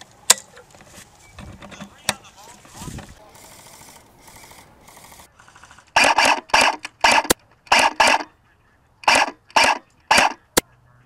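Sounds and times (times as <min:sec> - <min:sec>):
sharp clicks: 0:03.8 - 0:08.3, 0:09.0 - 0:10.7.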